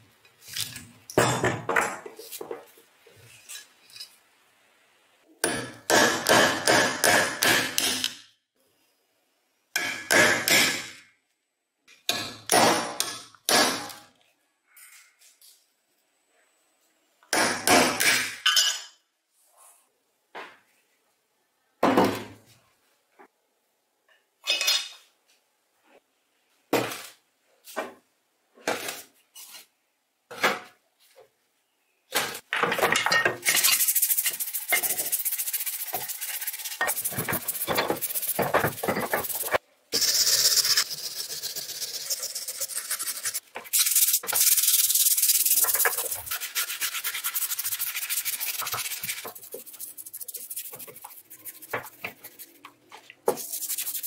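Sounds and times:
sponge scrubbing metal: 33.5s - 54.0s.

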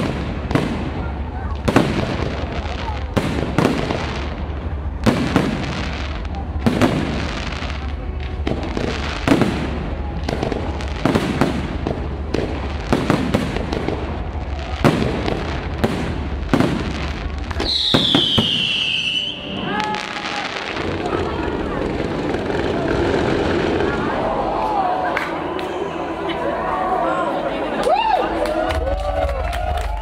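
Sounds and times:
firework falling whistle: 17.6s - 20.8s.

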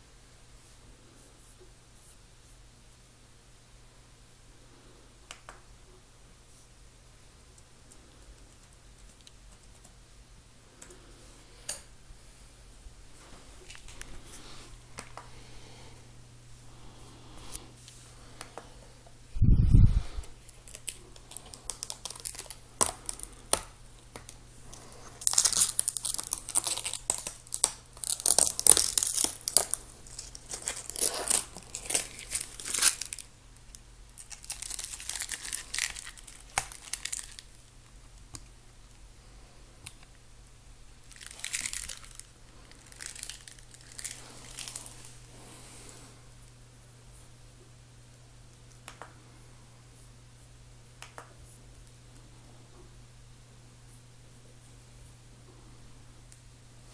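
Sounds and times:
packaging wrap crinkling: 20.2s - 37.8s, 41.0s - 45.3s.

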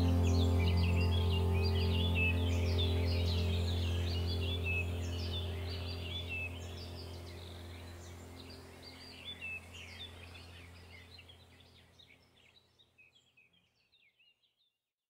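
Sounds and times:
steady low hum: 0.0s - 11.6s
small birds chirping: 0.0s - 14.7s.

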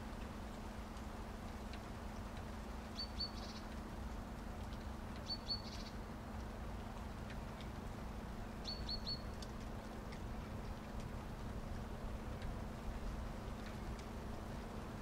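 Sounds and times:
small bird chirping: 2.9s - 3.7s, 5.2s - 6.0s, 8.6s - 9.3s.

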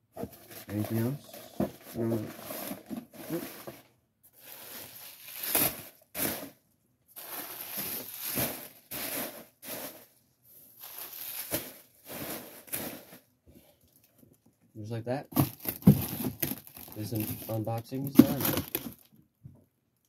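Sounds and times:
plastic packing material crinkling: 7.2s - 10.1s, 10.8s - 13.3s, 15.3s - 19.1s.

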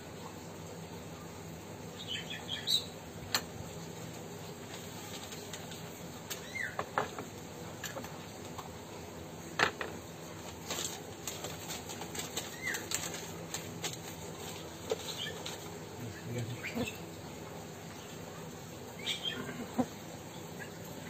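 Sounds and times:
paper rustling: 4.6s - 5.8s, 10.4s - 15.8s.

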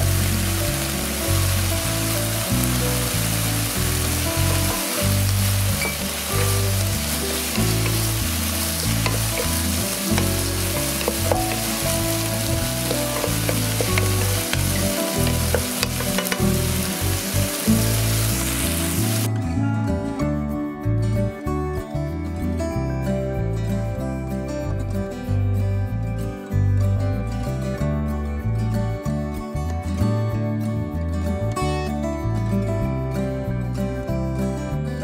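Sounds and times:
food sizzling in a frying pan: 0.0s - 19.3s
background music: 0.0s - 35.0s.

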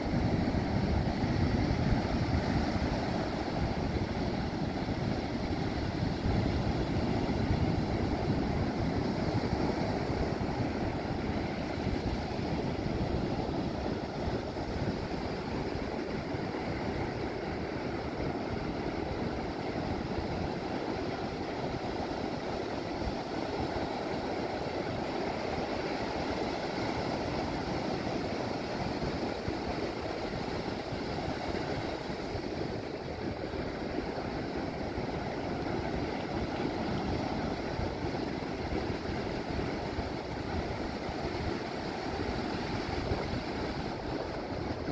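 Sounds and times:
waves breaking: 0.0s - 44.9s.

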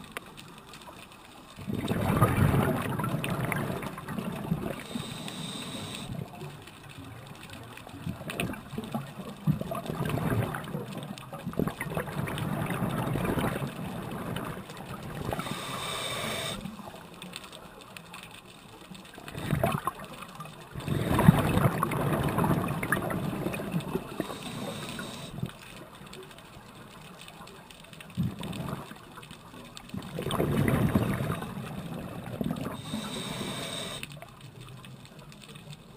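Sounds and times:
exhaled bubbles underwater: 1.6s - 17.1s, 19.2s - 26.8s, 28.1s - 34.0s
regulator hissing inhale: 4.8s - 6.2s, 15.3s - 16.8s, 24.2s - 25.5s, 32.7s - 34.2s.

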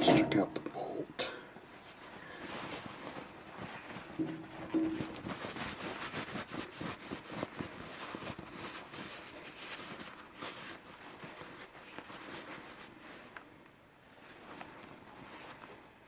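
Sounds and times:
paper towel rustling: 1.6s - 13.4s, 14.0s - 16.0s.

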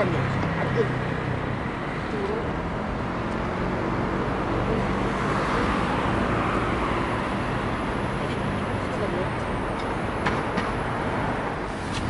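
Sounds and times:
road traffic noise: 0.0s - 12.0s.

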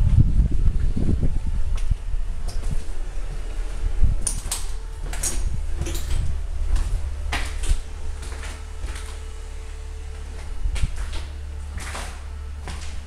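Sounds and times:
low rumble: 0.0s - 13.0s
footsteps on hardwood floor: 4.7s - 13.0s.

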